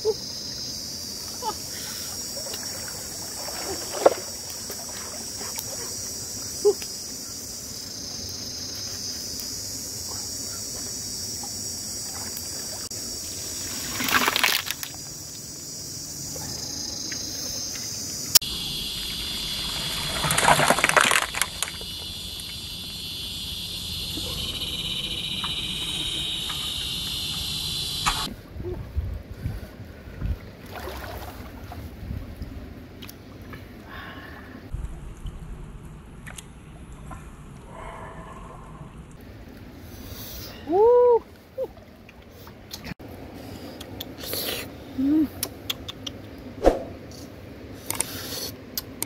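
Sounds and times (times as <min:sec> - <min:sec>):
water splashing and trickling: 0:01.4 - 0:06.8, 0:10.8 - 0:15.2, 0:18.6 - 0:22.9, 0:29.6 - 0:43.0
high-pitched drone: 0:21.6 - 0:28.3.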